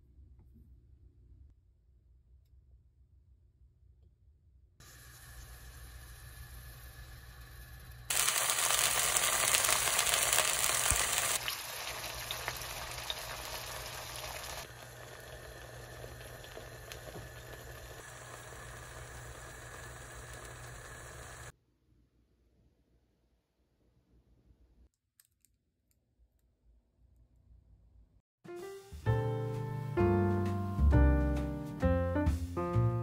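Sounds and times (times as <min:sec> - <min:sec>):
food sizzling in a frying pan: 0:04.8 - 0:21.5.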